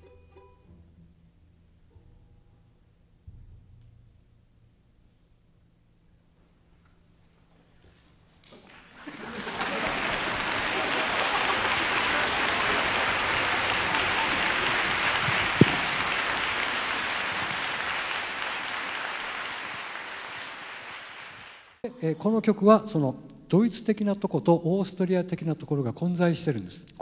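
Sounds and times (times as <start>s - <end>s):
audience applauding: 8.6s - 21.8s.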